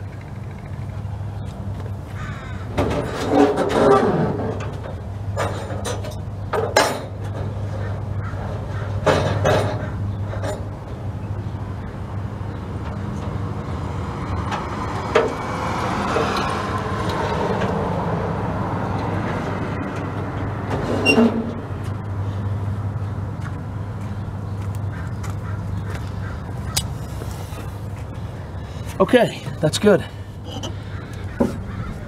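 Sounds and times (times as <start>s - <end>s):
car passing: 13.3s - 29.0s.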